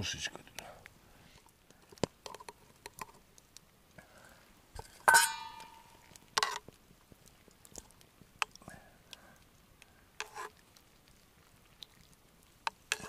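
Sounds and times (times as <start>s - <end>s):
loud ringing metal clink: 5.1s - 6.0s
metal tongs clinking on cookware: 5.1s - 6.6s.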